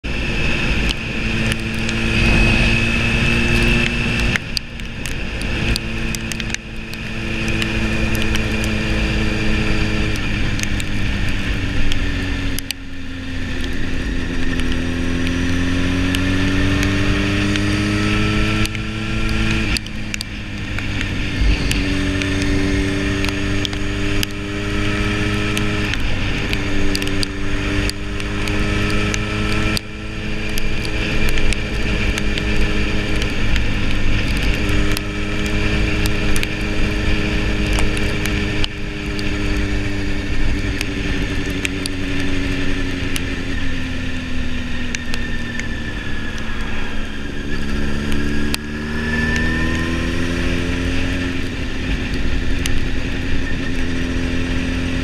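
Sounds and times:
wind rushing: 0:00.0 - 0:04.2, 0:45.2 - 0:50.9
motorcycle engine shifting gears: 0:00.0 - 0:55.0.

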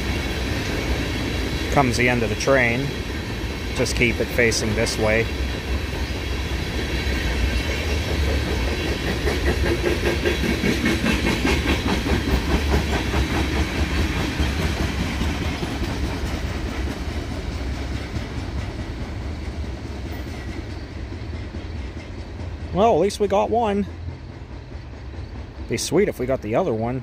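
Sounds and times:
train low rumble: 0:00.0 - 0:27.0
train wheels clicking over rail joints: 0:00.0 - 0:27.0.

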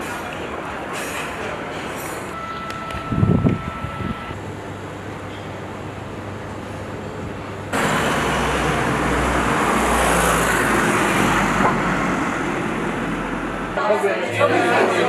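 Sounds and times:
vehicle passing: 0:07.8 - 0:13.8.

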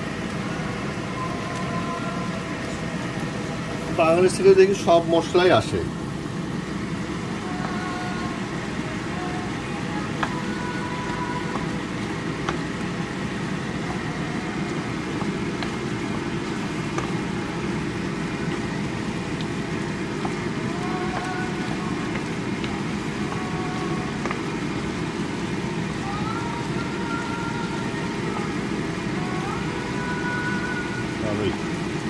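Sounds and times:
stove rumble: 0:00.0 - 0:32.0.

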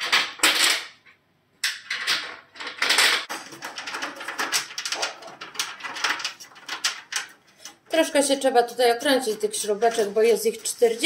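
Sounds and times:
steel panels scraping: 0:09.2 - 0:11.0.

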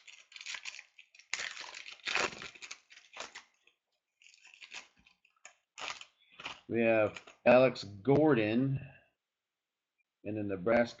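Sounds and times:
wrapper tearing and crinkling: 0:00.0 - 0:07.4.

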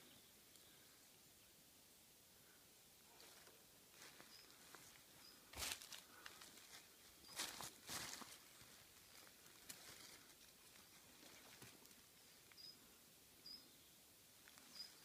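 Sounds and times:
small bird chirping: 0:04.1 - 0:05.5, 0:10.5 - 0:15.0.

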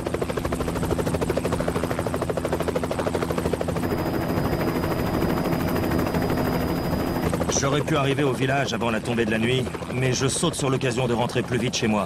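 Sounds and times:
helicopter rotor chopping: 0:00.0 - 0:12.0
thin high steady whine: 0:03.8 - 0:07.3.

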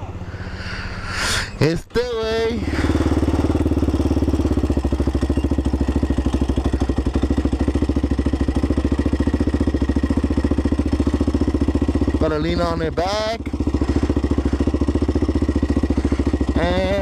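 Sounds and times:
quad engine running at low speed: 0:00.0 - 0:17.0.

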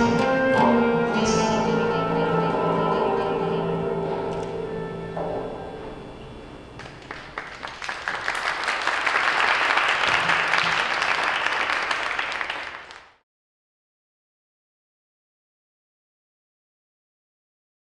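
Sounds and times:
music ringing: 0:00.0 - 0:06.8
audience applauding: 0:06.8 - 0:13.2.

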